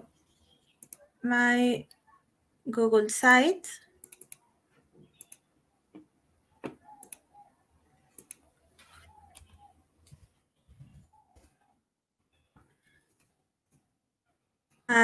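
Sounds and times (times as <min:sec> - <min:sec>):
mouse clicks: 0:00.7 - 0:01.1, 0:04.0 - 0:05.5, 0:06.6 - 0:07.5, 0:08.1 - 0:09.7
keyboard typing clicks: 0:00.8 - 0:01.1, 0:04.0 - 0:04.5, 0:05.1 - 0:05.5, 0:06.6 - 0:07.4, 0:08.1 - 0:08.5.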